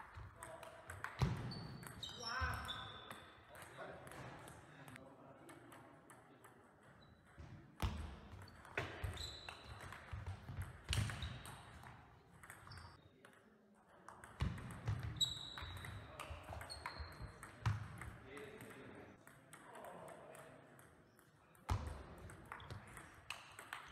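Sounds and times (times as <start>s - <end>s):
table tennis ball hits: 0.0s - 4.6s, 7.2s - 13.4s, 14.1s - 23.9s
shoe squeaks on floor: 1.4s - 3.4s, 8.8s - 9.9s, 15.0s - 17.4s.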